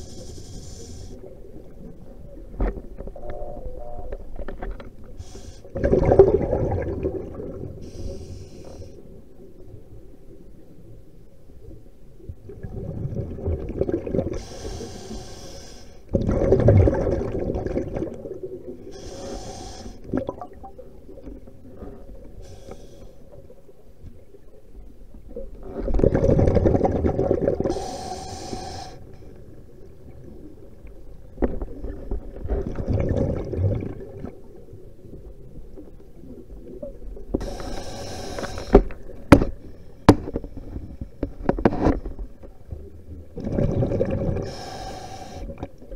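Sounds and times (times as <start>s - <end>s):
scuba regulator breathing: 0.0s - 1.4s, 5.2s - 5.9s, 7.8s - 9.1s, 14.3s - 16.1s, 18.9s - 20.2s, 21.7s - 23.3s, 27.6s - 29.3s, 37.4s - 41.2s, 44.4s - 45.7s
gurgling exhaled bubbles: 5.7s - 7.8s, 12.5s - 14.5s, 16.1s - 19.1s, 25.4s - 28.0s, 31.6s - 34.6s, 43.2s - 44.8s.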